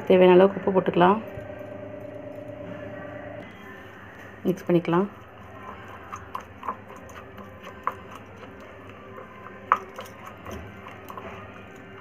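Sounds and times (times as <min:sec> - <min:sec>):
spoon scraping paste in bowl: 0:05.4 - 0:12.0.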